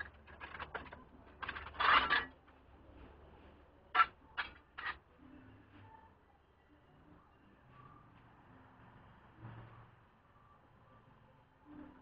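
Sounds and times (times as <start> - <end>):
metal tools clinking and rattling: 0.0 - 2.3.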